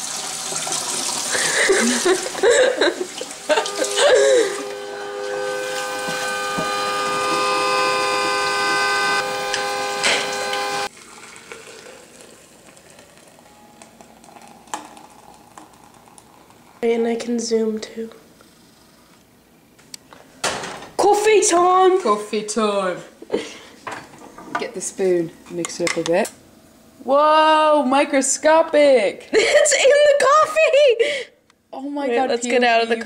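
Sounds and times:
kettle whistling: 0:00.4 - 0:16.8.

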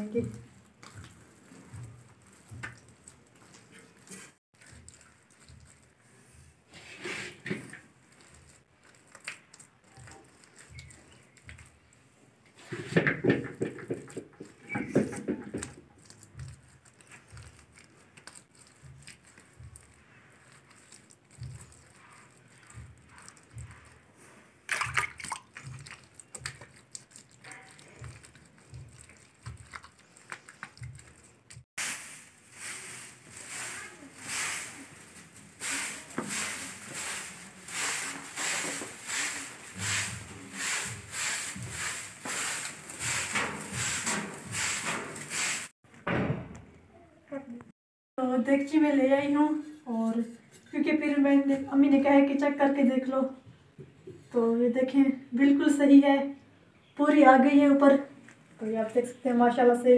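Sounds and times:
sweeping a dusty floor: 0:06.2 - 0:08.7, 0:12.5 - 0:15.9, 0:31.8 - 0:45.8
hands patting wet mud: 0:13.5 - 0:24.0, 0:24.7 - 0:45.7.

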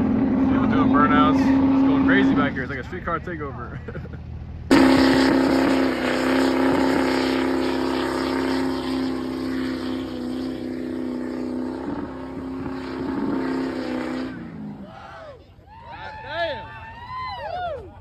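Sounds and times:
car engine revving hard: 0:00.0 - 0:02.8, 0:04.7 - 0:14.8.

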